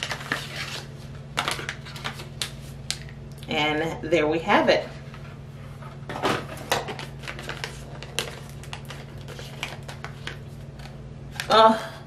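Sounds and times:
packet being torn open: 7.0 - 11.5.

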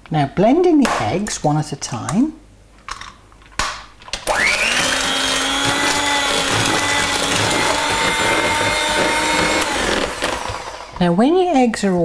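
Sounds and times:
electric hand mixer whining: 4.2 - 11.0.

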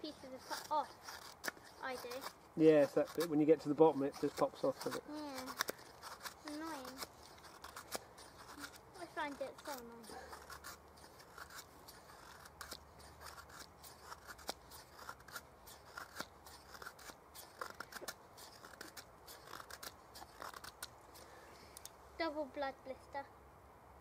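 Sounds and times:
knife scraping wood: 0.0 - 21.9.

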